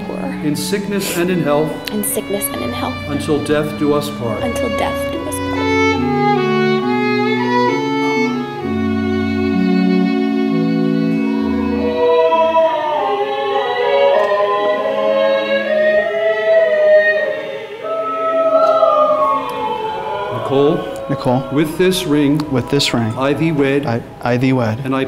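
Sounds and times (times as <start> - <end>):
low held chords: 0.0 - 13.1, 18.4 - 25.0
violin playing: 0.0 - 14.4, 19.5 - 25.0.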